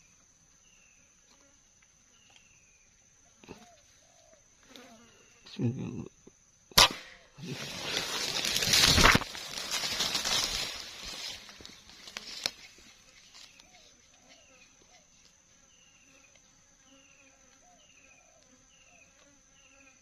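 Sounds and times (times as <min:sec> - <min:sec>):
insect drone: 0:00.0 - 0:20.0
sharp click: 0:06.7 - 0:07.2.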